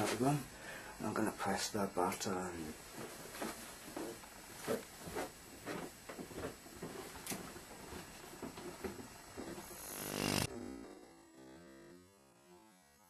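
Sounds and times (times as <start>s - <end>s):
faint footsteps: 2.8s - 9.8s.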